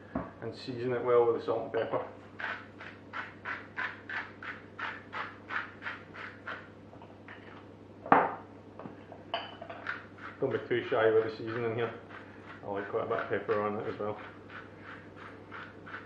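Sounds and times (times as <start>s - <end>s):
seasoning grinder grating: 2.3s - 6.7s, 9.8s - 16.0s
grinder knocking on wooden worktop: 8.1s - 8.9s.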